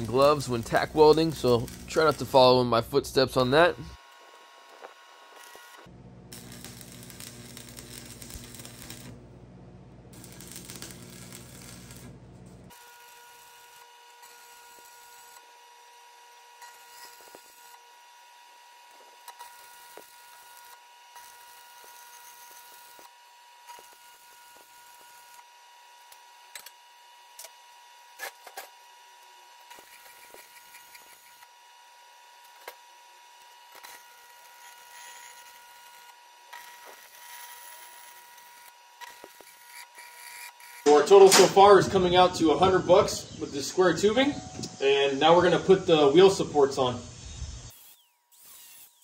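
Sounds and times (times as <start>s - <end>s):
stick welding hiss and crackle: 0.0s - 9.2s, 10.2s - 15.5s, 16.6s - 17.8s, 18.8s - 23.1s, 23.7s - 25.4s, 29.7s - 31.5s, 33.4s - 49.0s.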